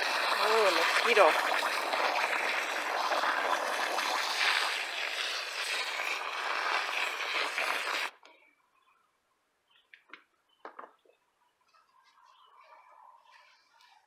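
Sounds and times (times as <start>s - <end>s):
hose spraying water into soil: 0.0s - 8.2s.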